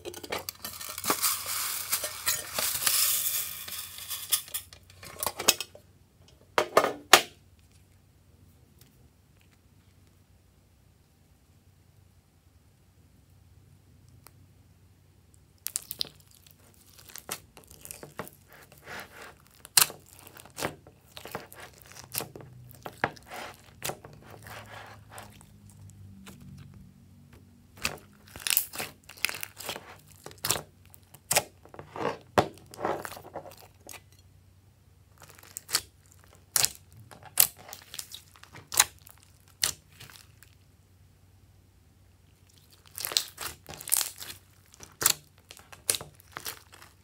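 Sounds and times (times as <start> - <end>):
slime crackling and squelching: 15.6 - 26.8, 27.7 - 34.1, 35.1 - 40.7, 42.3 - 47.0.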